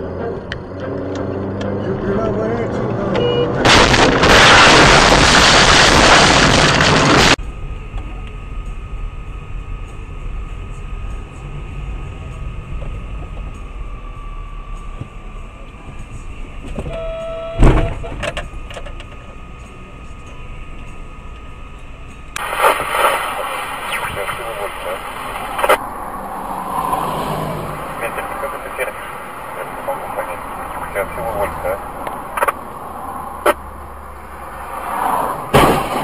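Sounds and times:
steady vehicle hum: 0:00.0 - 0:36.0
loud rushing noise: 0:03.6 - 0:07.4
sharp bang of a collision: 0:35.5 - 0:36.0.

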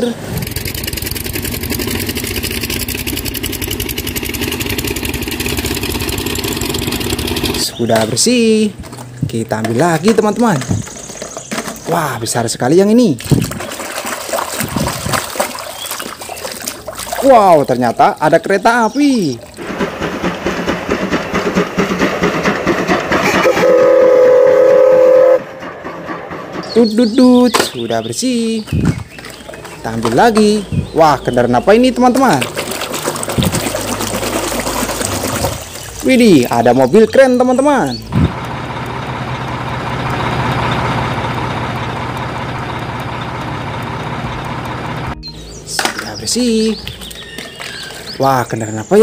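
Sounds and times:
diesel engine running: 0:00.0 - 0:11.9, 0:19.6 - 0:48.2
steam locomotive chuffing: 0:19.6 - 0:27.5, 0:33.6 - 0:45.2
steam whistle chord: 0:23.1 - 0:25.6.

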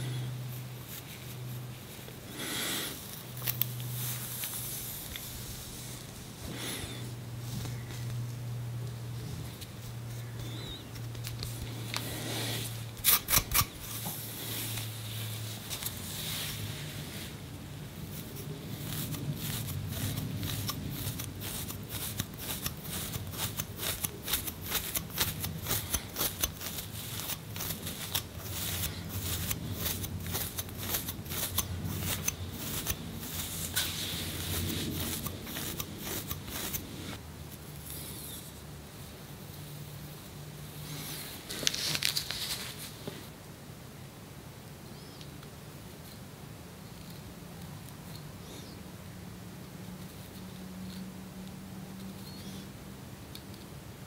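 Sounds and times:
scratching on scalp and hair: 0:00.5 - 0:38.6.

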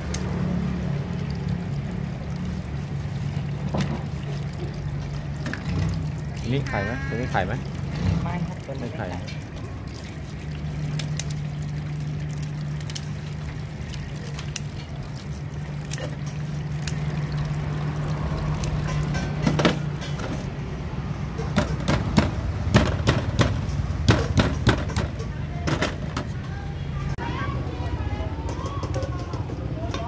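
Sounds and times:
tap water pouring into sink: 0:00.0 - 0:20.0.

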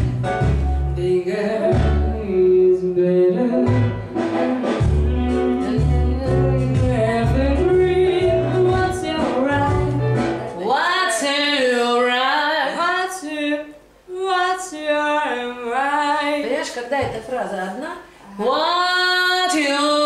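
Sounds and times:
backing track with heavy bass: 0:00.0 - 0:02.5, 0:03.5 - 0:10.6
woman singing: 0:01.0 - 0:04.1, 0:05.1 - 0:17.3, 0:18.3 - 0:20.0.

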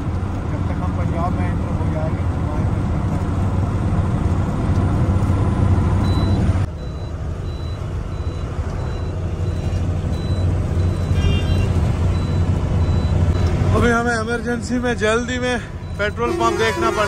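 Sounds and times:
diesel truck engine running: 0:00.0 - 0:17.0
short high warning beeps: 0:15.6 - 0:17.0.

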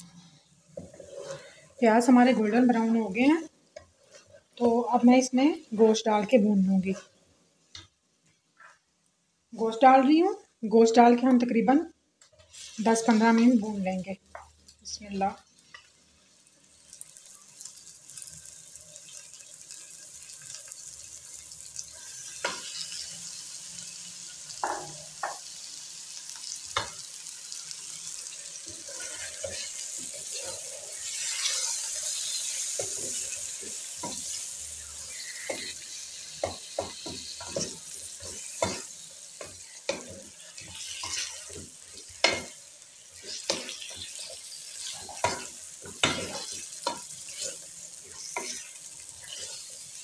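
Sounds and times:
wooden spatula scraping pot: 0:00.8 - 0:02.7
meat sizzling in hot oil: 0:12.4 - 0:50.0.

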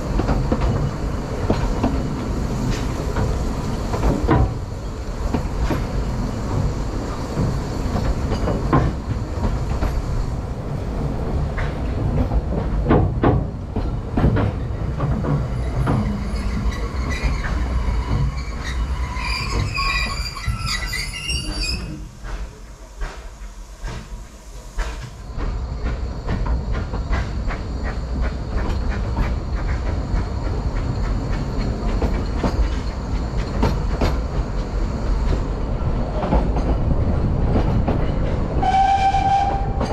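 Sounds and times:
train wheels clattering over joints: 0:00.0 - 0:10.4, 0:11.3 - 0:39.9
high wheel squeal: 0:15.6 - 0:22.1.

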